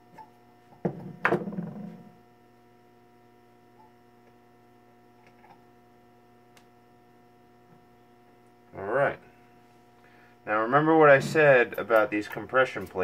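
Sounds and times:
electrical mains hum: 0.0s - 13.0s
metal scraping: 10.8s - 12.8s.

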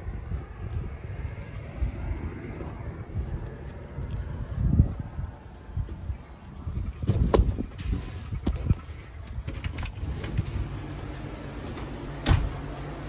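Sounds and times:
steady low hum: 0.0s - 9.4s.

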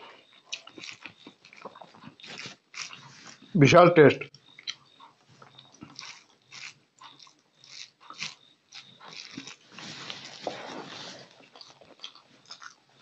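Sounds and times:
chewing mouth noise: 0.2s - 3.5s, 4.4s - 10.6s, 11.3s - 13.0s
fingers squelching food: 4.4s - 10.6s.

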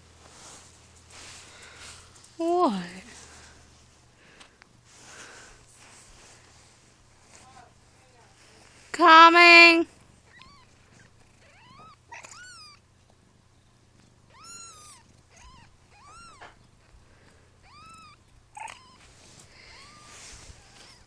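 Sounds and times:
kittens mewing: 10.2s - 12.8s, 14.3s - 16.6s, 17.2s - 21.0s.

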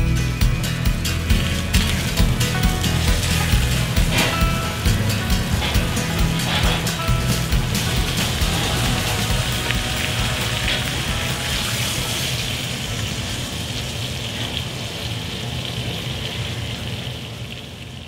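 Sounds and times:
steak sizzling in a pan: 1.3s - 14.3s.

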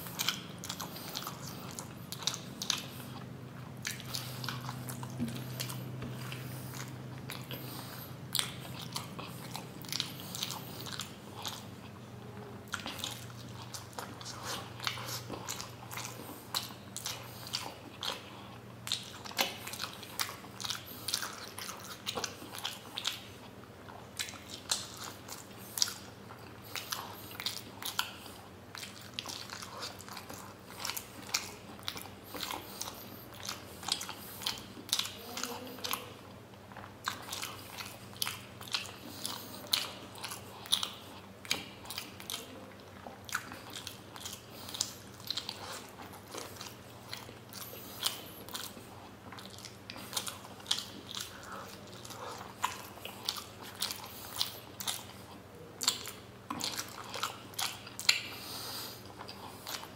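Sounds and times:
faint low hum: 0.0s - 59.9s
wet chewing smacks: 0.0s - 59.9s.

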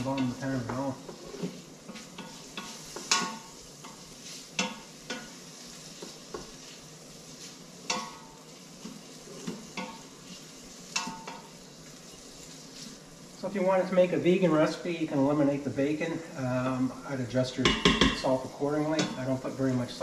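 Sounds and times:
utensil scraping a metal pot: 0.0s - 5.3s
bacon sizzling: 0.0s - 20.0s.

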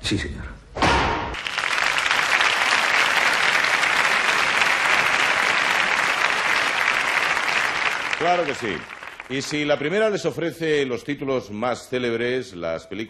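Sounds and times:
brief loud hit: 0.8s - 1.4s
audience applauding: 1.4s - 10.2s.

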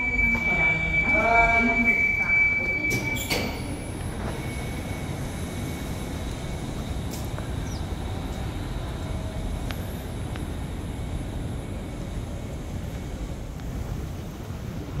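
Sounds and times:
road traffic rumble: 0.0s - 15.0s
wind buffeting microphone: 3.6s - 15.0s.

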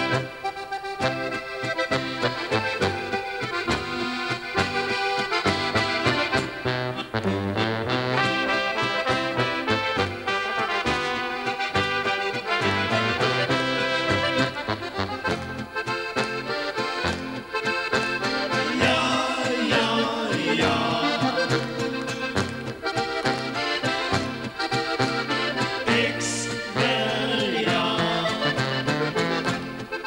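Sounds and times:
accordions playing: 0.0s - 30.0s
brass and clarinet line: 0.0s - 30.0s
oom-pah bass: 0.0s - 30.0s.

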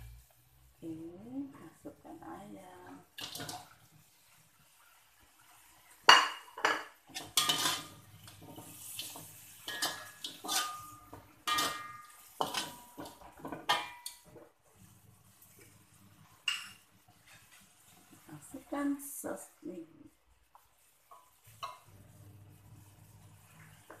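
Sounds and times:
metal spatula scraping a wok: 6.6s - 14.1s, 16.5s - 18.0s.

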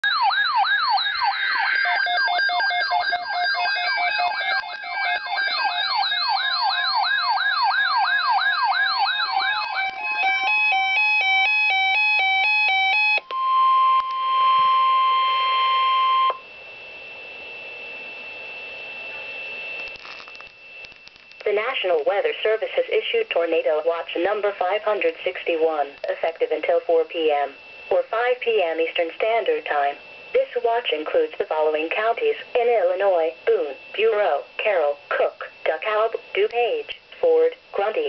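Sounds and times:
steady single-pitch alert tone: 0.0s - 22.6s
siren-like alarm sweeps: 0.0s - 38.0s
two-tone alarm: 0.0s - 38.0s
faint radio hiss: 16.4s - 38.0s.

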